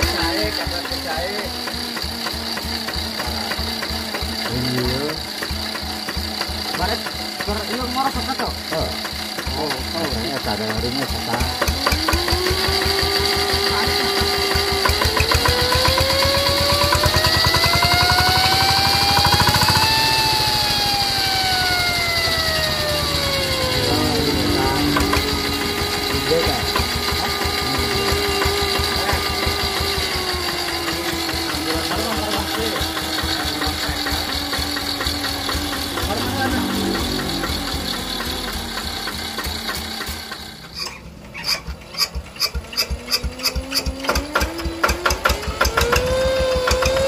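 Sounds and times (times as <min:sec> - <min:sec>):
diesel engine running: 0:00.0 - 0:47.0
high whine: 0:20.1 - 0:29.5, 0:34.8 - 0:40.6.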